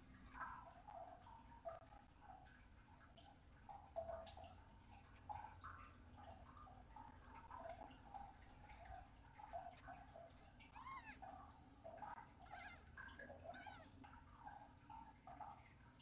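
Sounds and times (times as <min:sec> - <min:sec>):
kittens mewing faintly: 0:09.5 - 0:15.5.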